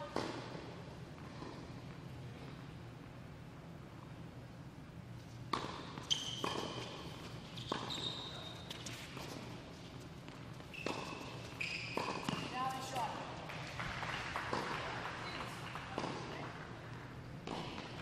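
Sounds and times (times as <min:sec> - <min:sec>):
tennis ball bouncing: 0:00.1 - 0:01.8, 0:05.5 - 0:08.1, 0:08.7 - 0:13.6, 0:14.4 - 0:18.0
racket striking tennis ball: 0:05.5 - 0:08.0, 0:10.8 - 0:13.0, 0:17.4 - 0:18.0
sneakers squeaking on court: 0:05.5 - 0:13.1.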